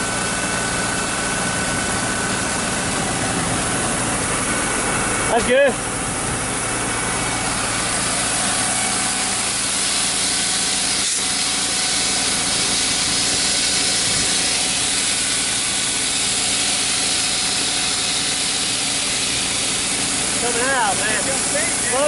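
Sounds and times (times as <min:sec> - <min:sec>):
engine humming: 0:00.0 - 0:22.0
grain pouring hiss: 0:07.4 - 0:22.0.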